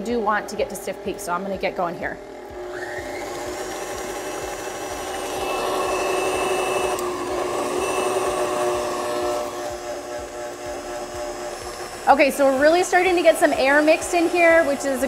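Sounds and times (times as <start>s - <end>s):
stand mixer motor whining: 2.2s - 15.0s.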